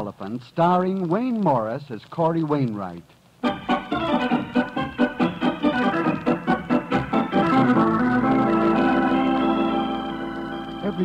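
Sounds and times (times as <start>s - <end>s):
organ music: 3.4s - 11.0s.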